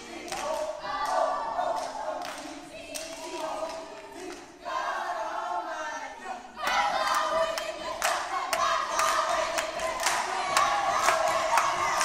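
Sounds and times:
group chanting in unison: 0.0 - 12.0
sharp hand claps: 7.1 - 12.0.

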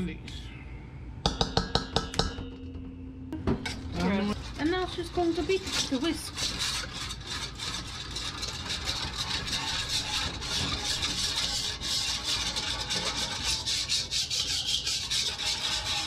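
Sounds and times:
whisk beating in metal bowl: 4.3 - 16.0.

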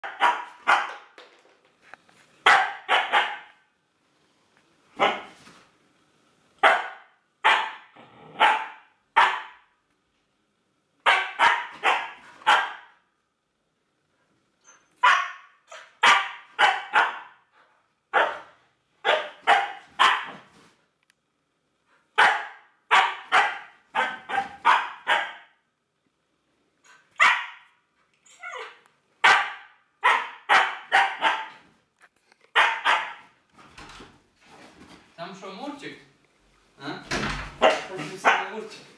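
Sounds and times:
dog barking in play: 0.0 - 1.2, 2.4 - 3.6, 5.0 - 5.4, 6.6 - 9.7, 11.0 - 13.0, 15.0 - 17.4, 18.1 - 20.6, 22.2 - 25.6, 26.9 - 27.8, 28.4 - 31.7, 32.5 - 33.4, 37.6 - 38.6.

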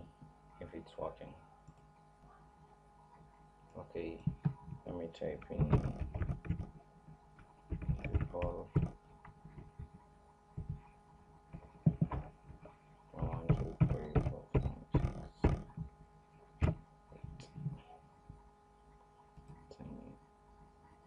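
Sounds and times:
faint electrical hum: 0.0 - 21.0
keyboard typing: 5.4 - 6.7, 7.7 - 10.0, 11.6 - 15.9.

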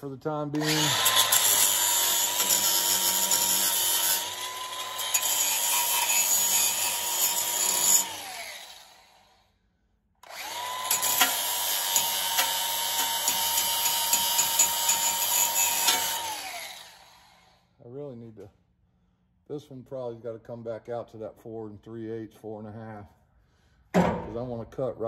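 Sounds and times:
angle grinder grinding steel: 0.6 - 9.2, 10.2 - 17.4.

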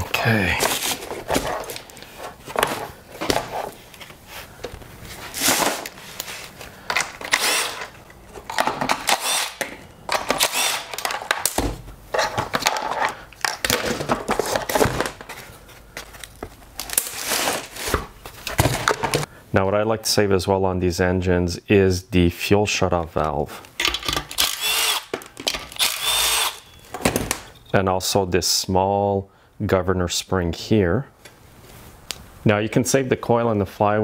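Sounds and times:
plastic covers clattering: 0.2 - 9.1, 10.1 - 19.3
cordless driver running: 7.3 - 7.9, 24.4 - 25.1, 25.8 - 26.6.

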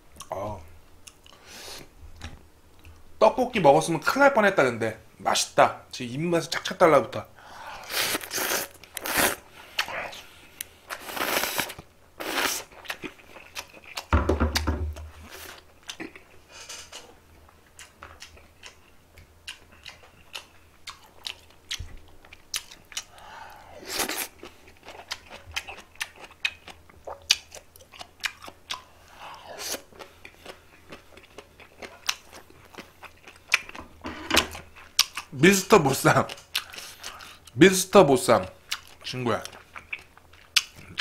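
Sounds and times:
person chewing food: 1.0 - 1.9, 7.7 - 14.1, 15.0 - 35.4, 36.2 - 37.6, 38.6 - 41.0.

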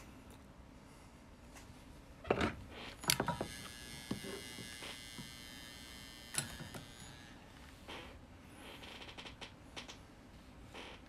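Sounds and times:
soldering gun buzzing: 2.9 - 7.7
soldering gun knocking: 3.1 - 7.0.

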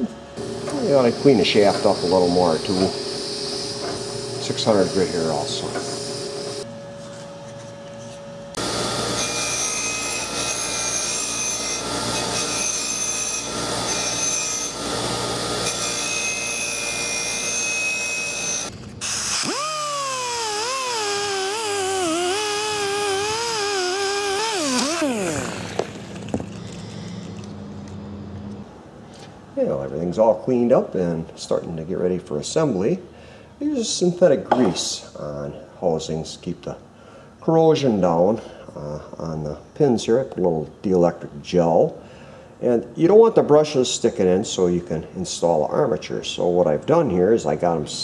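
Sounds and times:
motor whine: 0.0 - 9.3, 18.3 - 28.7
bench grinder grinding metal: 0.0 - 26.4
drill press spinning against sandpaper: 0.4 - 6.6, 18.4 - 26.4.

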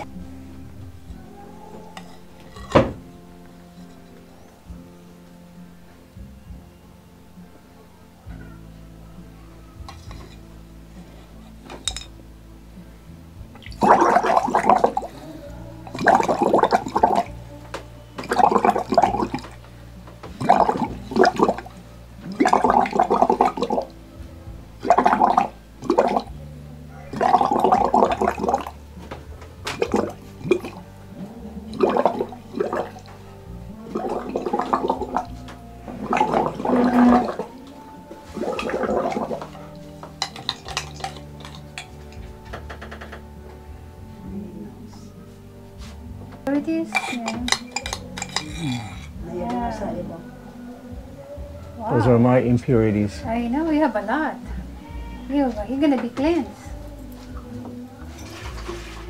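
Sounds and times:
bubbling through tube in water: 13.7 - 15.1, 15.9 - 17.3, 18.2 - 19.5, 20.4 - 21.7, 22.3 - 23.9, 24.8 - 26.3, 27.1 - 28.8, 29.7 - 30.8, 31.7 - 33.1, 33.8 - 37.6, 38.3 - 39.5.

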